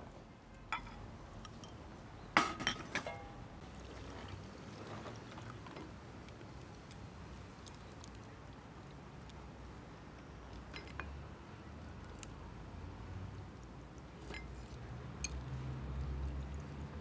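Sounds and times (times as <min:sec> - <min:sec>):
water sloshing: 0:03.6 - 0:06.5.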